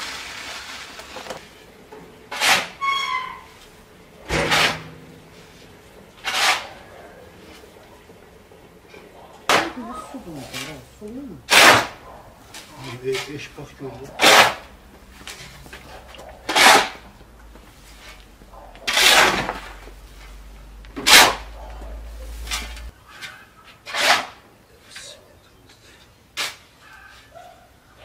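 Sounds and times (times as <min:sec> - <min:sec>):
metal spade scraping concrete and gravel: 0:02.3 - 0:07.7, 0:09.5 - 0:24.4, 0:26.3 - 0:26.9.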